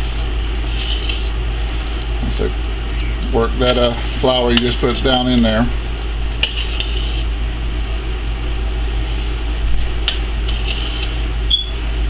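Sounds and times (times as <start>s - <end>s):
pot boiling and bubbling: 0.0s - 12.0s
steady low hum: 0.0s - 12.0s.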